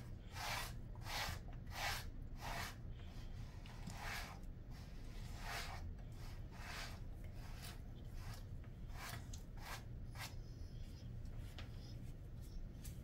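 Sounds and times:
brush strokes through dog fur: 0.3s - 2.8s, 3.5s - 13.0s.

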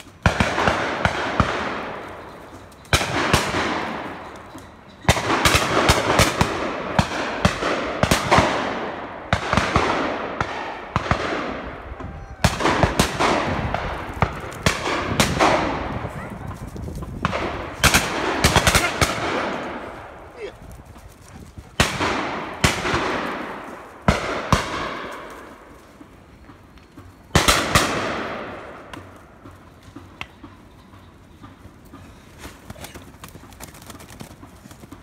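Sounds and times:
shotgun shots echoing: 0.2s - 2.2s, 2.9s - 4.3s, 5.1s - 11.8s, 12.4s - 16.1s, 17.2s - 20.3s, 21.7s - 25.7s, 27.3s - 28.9s.

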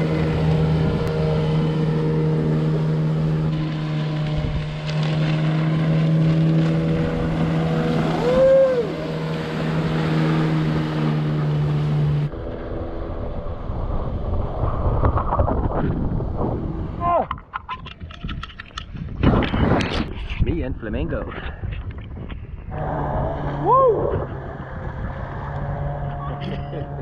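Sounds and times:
wind on microphone: 0.0s - 5.2s, 12.2s - 27.0s
rising and falling tone: 0.0s - 17.0s, 22.7s - 27.0s
water rushing and splashing: 0.0s - 19.0s, 22.7s - 27.0s
outboard motor drone: 0.0s - 20.4s, 21.2s - 27.0s.

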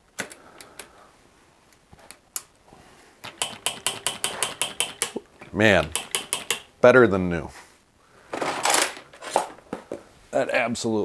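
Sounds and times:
bicycle freewheel ticking: 3.3s - 5.2s, 5.9s - 6.6s.

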